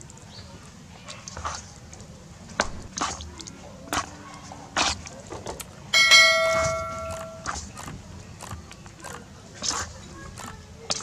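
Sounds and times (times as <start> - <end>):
wet smacks of chicken in marinade: 0.0 - 5.8
metal bowl ringing: 5.9 - 7.5
metal spoon knocking on bowl: 6.0 - 7.5.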